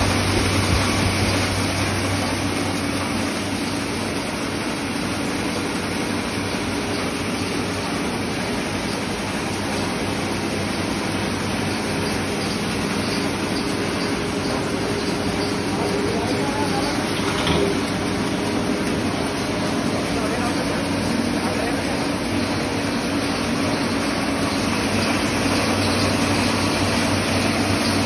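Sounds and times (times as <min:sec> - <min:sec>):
grinding machine droning: 0:00.0 - 0:28.0.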